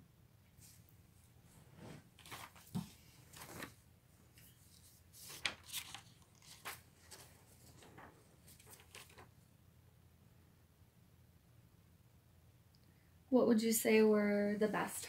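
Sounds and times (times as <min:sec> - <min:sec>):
faint handling rustles and clicks: 0:01.9 - 0:09.4.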